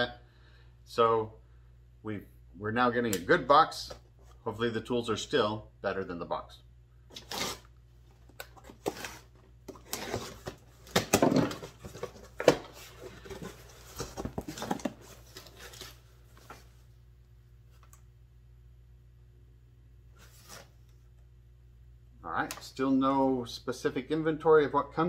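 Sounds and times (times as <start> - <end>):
cardboard box rustling: 8.6 - 16.6.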